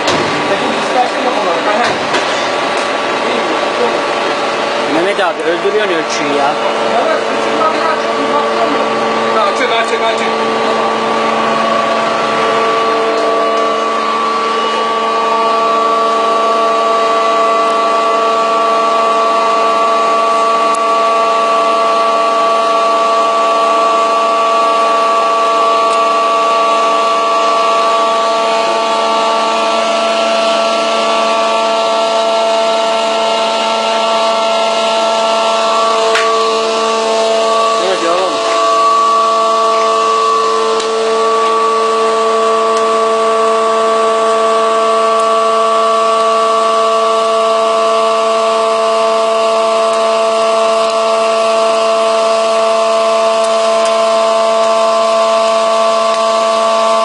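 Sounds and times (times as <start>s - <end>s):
machine motor whine: 0.0s - 57.0s.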